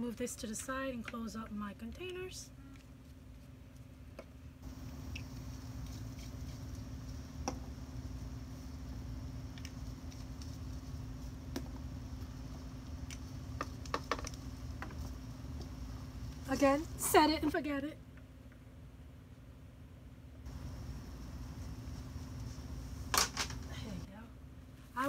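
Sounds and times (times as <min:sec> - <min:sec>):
steady low background hum: 0:00.0 - 0:25.0
plastic bottles clicking and tapping: 0:13.6 - 0:15.0.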